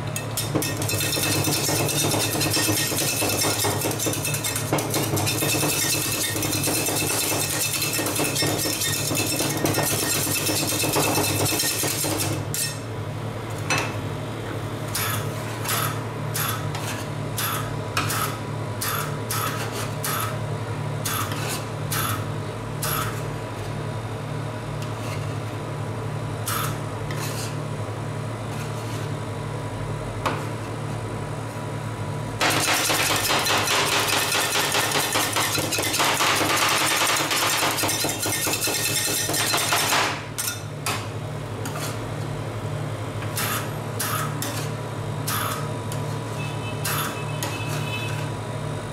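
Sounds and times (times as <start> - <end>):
spatulas chopping on metal plate: 0.4 - 12.8, 32.4 - 40.6.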